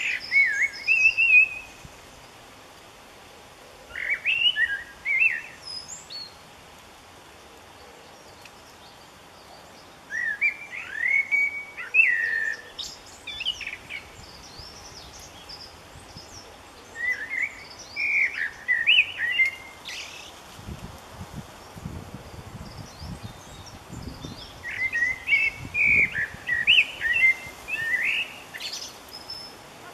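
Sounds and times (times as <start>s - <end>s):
faint steady hiss: 0.0s - 29.9s
young birds chirping: 22.7s - 29.9s.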